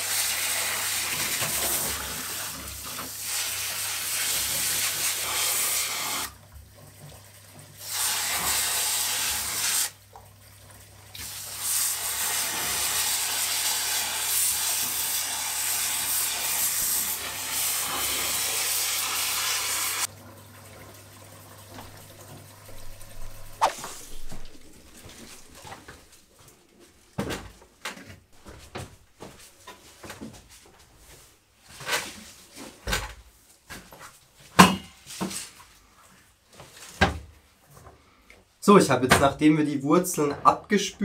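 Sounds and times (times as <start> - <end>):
hose nozzle spraying water: 0.0 - 6.3, 7.8 - 10.0, 11.2 - 20.1, 22.7 - 26.0.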